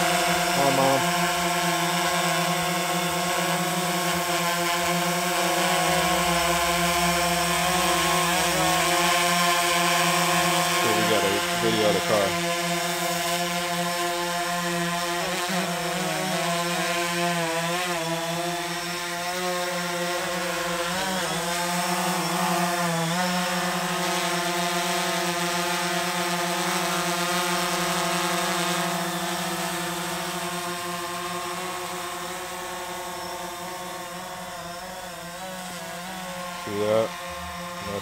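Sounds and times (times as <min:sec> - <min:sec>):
drone propellers buzzing whine: 0:00.0 - 0:38.0.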